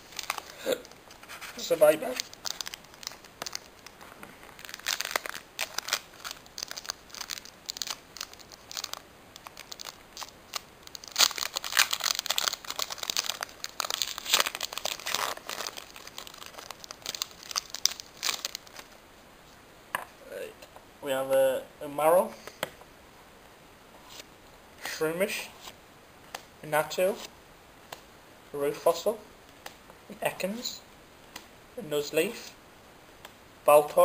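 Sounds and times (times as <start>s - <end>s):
foil wrapper crinkling and tearing: 0.0s - 19.0s.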